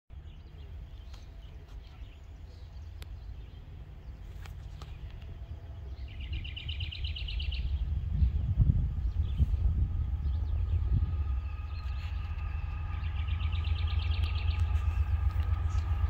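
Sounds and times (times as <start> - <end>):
birds chirping: 0.1 - 16.0
low rumble: 0.1 - 16.0
bird trill: 4.9 - 16.0.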